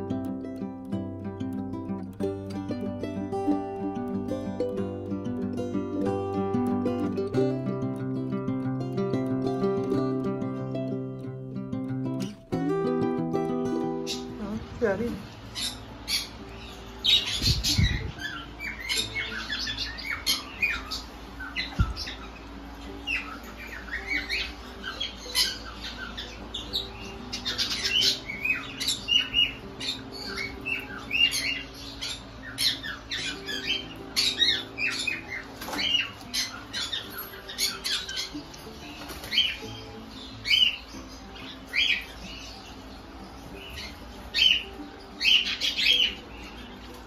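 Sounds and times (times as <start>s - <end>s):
parrots squawking and chirping: 15.0s - 47.0s.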